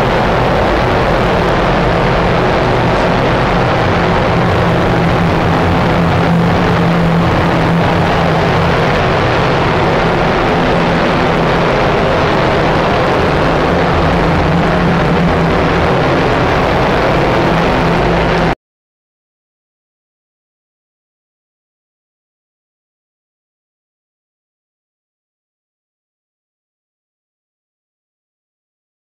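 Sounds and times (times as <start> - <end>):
low hum: 0.0 - 18.6
ventilation fans rushing air: 0.0 - 18.6.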